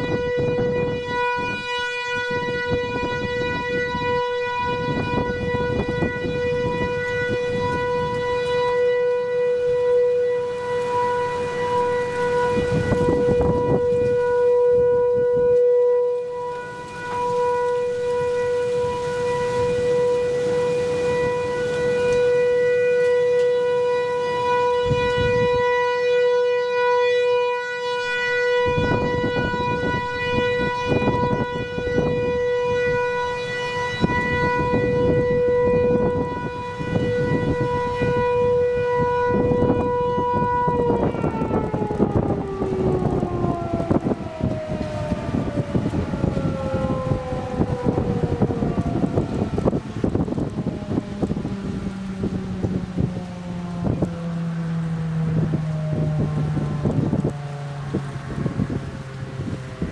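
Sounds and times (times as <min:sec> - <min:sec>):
warning siren steady tone: 0:00.0 - 0:59.9
wind buffeting microphone: 0:00.0 - 0:59.9.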